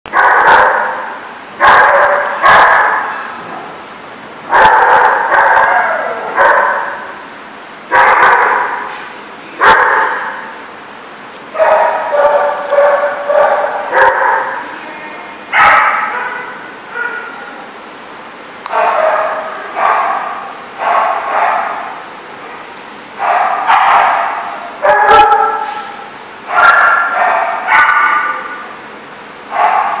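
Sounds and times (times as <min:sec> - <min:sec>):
dog barking: 0:00.1 - 0:03.3, 0:04.5 - 0:07.1, 0:07.9 - 0:08.9, 0:09.6 - 0:10.6, 0:11.6 - 0:14.6, 0:15.5 - 0:17.4, 0:18.7 - 0:22.0, 0:23.2 - 0:28.5, 0:29.5 - 0:30.0
puppy yapping: 0:11.6 - 0:14.6, 0:18.7 - 0:22.0, 0:26.5 - 0:28.4.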